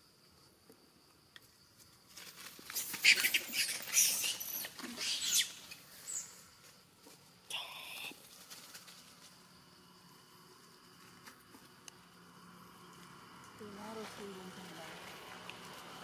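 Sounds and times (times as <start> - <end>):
dry leaves rustling and crackling: 2.1 - 4.7, 8.2 - 9.6.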